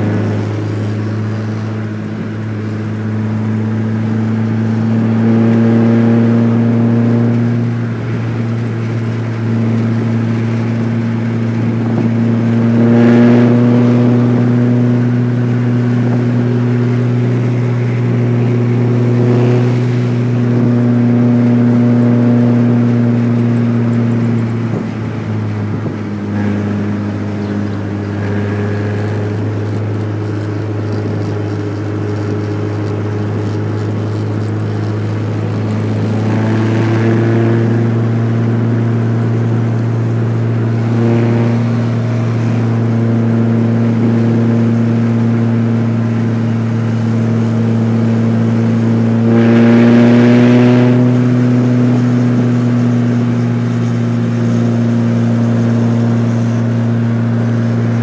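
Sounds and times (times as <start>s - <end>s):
car engine and tyre drone: 0.0s - 58.0s.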